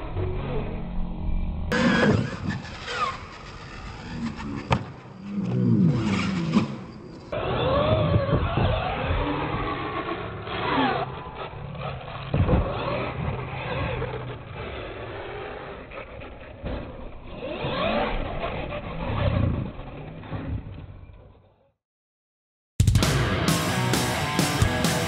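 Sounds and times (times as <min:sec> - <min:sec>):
toy truck motor whining: 0:01.7 - 0:21.2.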